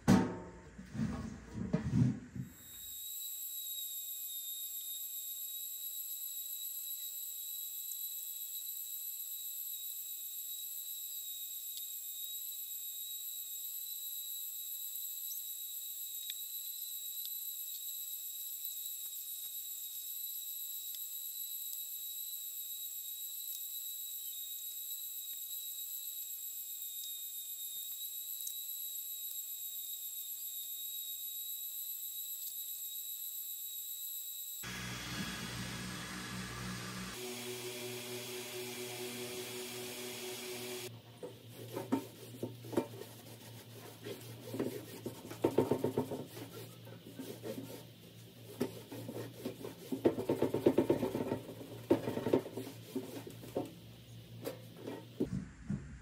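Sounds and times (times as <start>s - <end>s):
laser engraver high-pitched whine: 2.5s - 40.9s.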